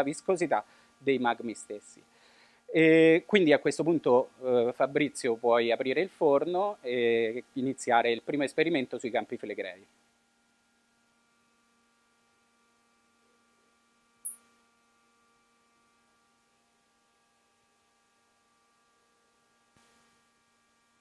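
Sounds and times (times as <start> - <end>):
faint electrical hum: 0.0 - 21.0
sharp high click: 14.2 - 14.5.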